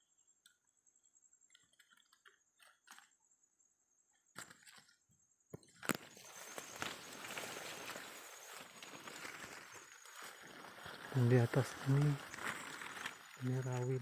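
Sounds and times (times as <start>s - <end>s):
high-pitched insect drone: 5.8s - 14.0s
rustling and brushing of leaves: 5.8s - 14.0s.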